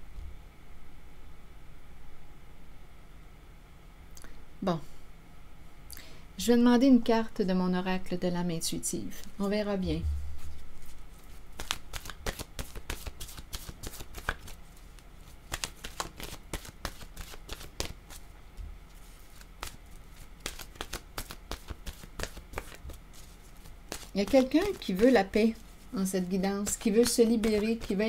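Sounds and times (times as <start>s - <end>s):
low thump: 9.9s - 10.6s
cards being shuffled: 10.4s - 18.3s, 18.9s - 28.0s.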